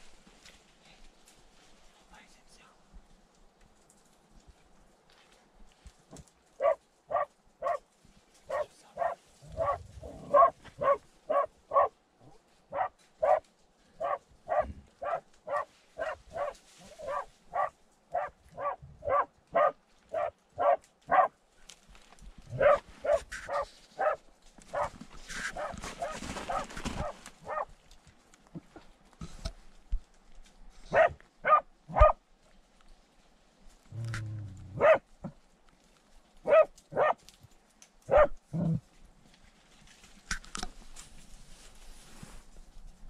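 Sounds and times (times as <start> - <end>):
dog barking underground: 6.6 - 7.8, 8.5 - 13.4, 14.0 - 21.4, 22.5 - 27.8, 30.8 - 32.2, 33.9 - 35.4, 36.4 - 37.2, 38.1 - 38.8.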